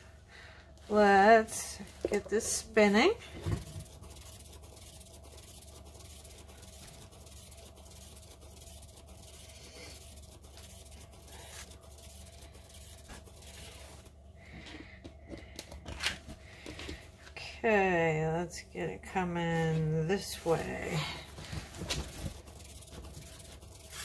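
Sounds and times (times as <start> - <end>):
turntable whirring: 2.0 - 14.2, 22.0 - 24.0.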